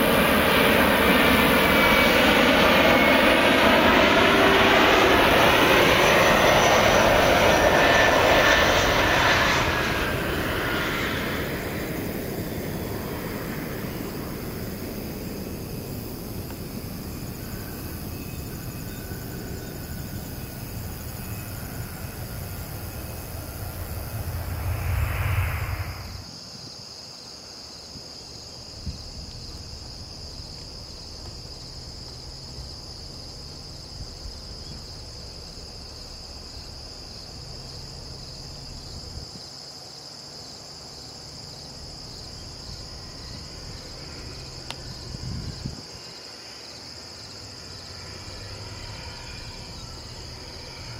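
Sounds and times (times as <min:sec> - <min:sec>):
distant jet rumble: 0:00.0 - 0:26.3, 0:41.6 - 0:50.9
jet landing: 0:00.0 - 0:26.4, 0:41.6 - 0:50.9
insects chirring: 0:00.0 - 0:50.9.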